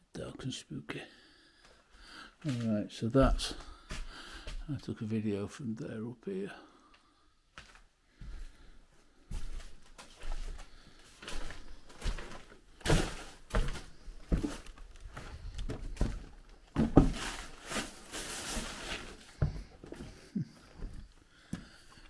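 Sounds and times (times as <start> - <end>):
footsteps on wooden floor: 7.6 - 17.6, 19.0 - 22.0.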